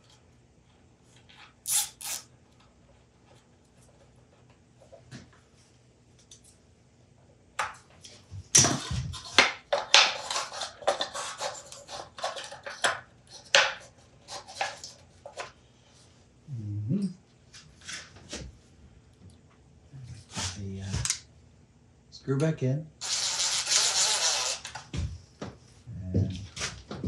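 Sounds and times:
rustling clattering and knocks: 24.8s - 27.0s.

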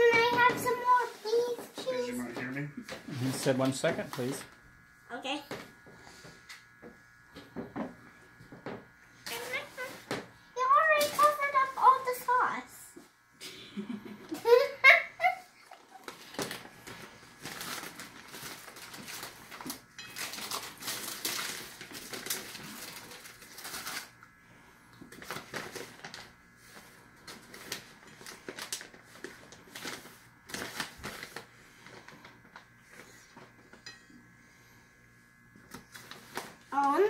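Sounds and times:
plastic bag crinkling: 15.8s - 24.2s, 25.1s - 33.1s.

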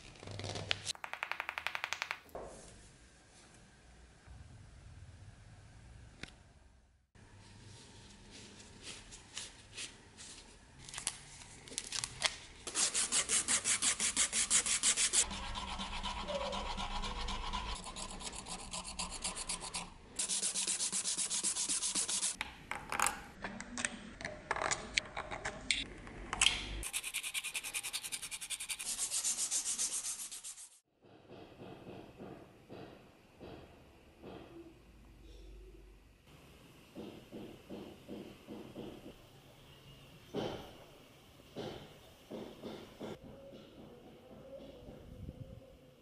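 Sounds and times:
sandpaper rasping on wood: 12.7s - 22.4s, 26.8s - 30.8s.

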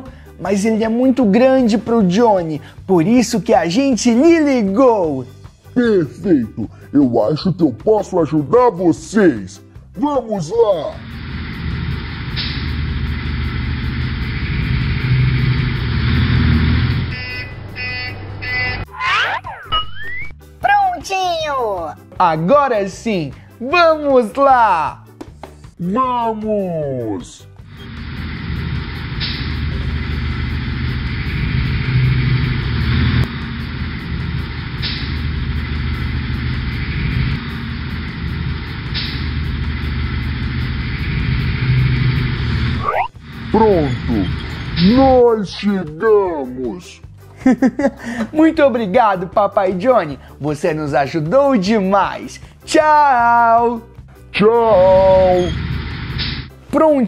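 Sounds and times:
short hiss: 11.0s - 14.4s, 27.7s - 30.2s, 34.8s - 35.4s, 38.8s - 39.5s, 56.1s - 56.6s
heavy tractor engine running: 11.0s - 18.8s, 27.7s - 45.0s
short beeps: 17.1s - 18.9s, 42.7s - 43.2s, 55.3s - 55.6s.

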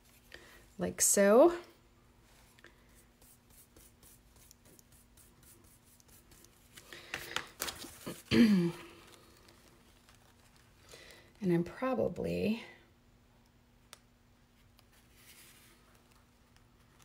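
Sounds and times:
brush strokes scratching: 2.3s - 6.8s, 14.9s - 16.2s
rustling scrapes: 14.9s - 16.0s.

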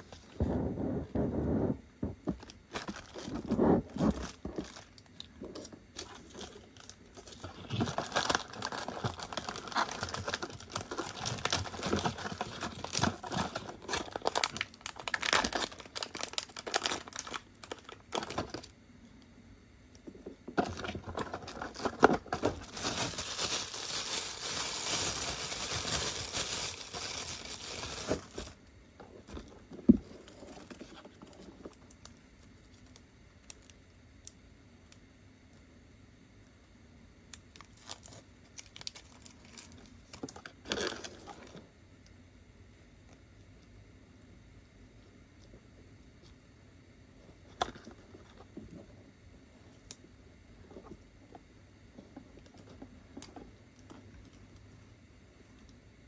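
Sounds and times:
plastic and foil packaging crinkling: 2.2s - 18.8s, 20.5s - 33.8s, 37.5s - 41.6s
packaging tearing: 6.0s - 18.7s, 20.6s - 28.6s.

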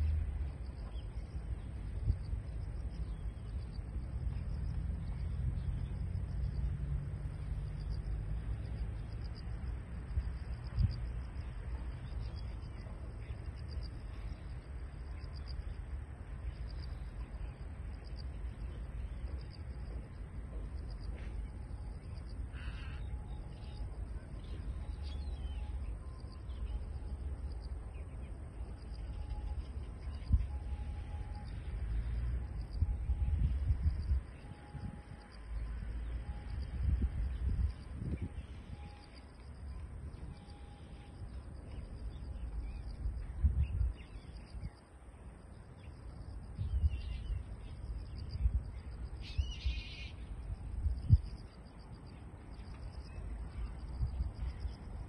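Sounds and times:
insects trilling: 0.0s - 55.0s
wind rumble on microphone: 0.0s - 55.0s
faint high bird chirps: 21.0s - 32.0s, 46.6s - 55.0s
harsh caw-like bird call: 22.5s - 23.2s.

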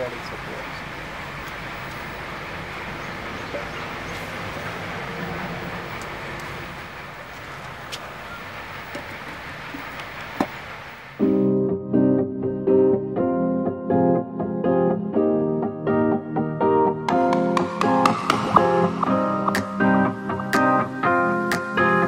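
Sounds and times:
piano music: 11.2s - 22.0s.

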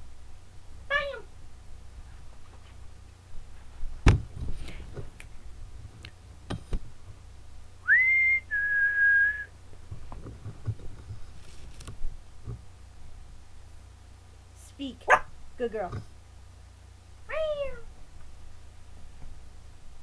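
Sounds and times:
person whistling: 7.8s - 9.5s.

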